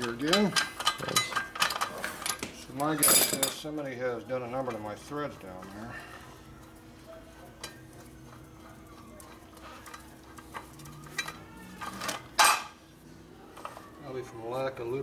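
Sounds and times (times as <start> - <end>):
metal clicks and clinks: 0.0 - 3.6.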